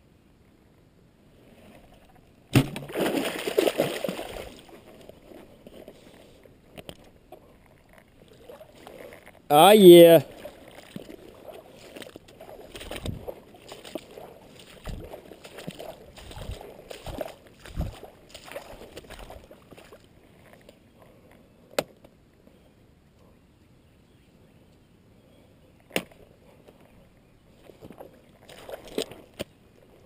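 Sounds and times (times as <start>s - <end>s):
footsteps sloshing through water: 2.6s - 7.1s, 7.7s - 9.4s, 10.0s - 20.7s, 27.5s - 29.6s.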